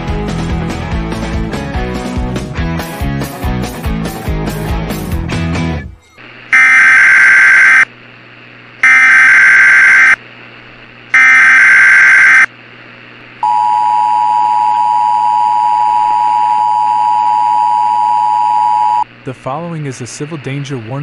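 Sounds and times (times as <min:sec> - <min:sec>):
digital data tone bursts: 0:06.5 - 0:07.9, 0:08.8 - 0:10.2, 0:11.2 - 0:12.5
two-tone alert signal: 0:06.6 - 0:07.8, 0:08.8 - 0:10.2, 0:11.2 - 0:12.5.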